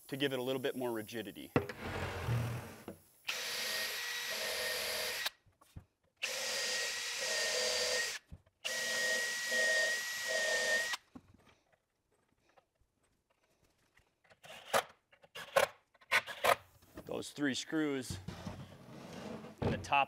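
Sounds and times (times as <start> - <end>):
power drill driving screws: 3.3 - 5.4, 6.2 - 11.0.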